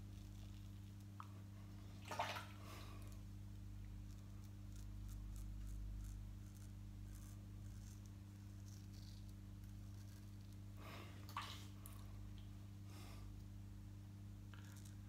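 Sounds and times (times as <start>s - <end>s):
low room hum: 0.0s - 15.0s
razor scraping stubble: 4.0s - 10.6s.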